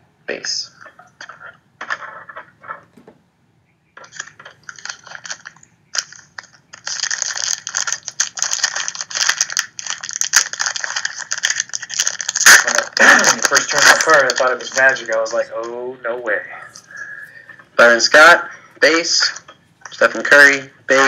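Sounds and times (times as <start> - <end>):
foil wrapper crinkling: 4.0 - 15.8, 18.8 - 21.0.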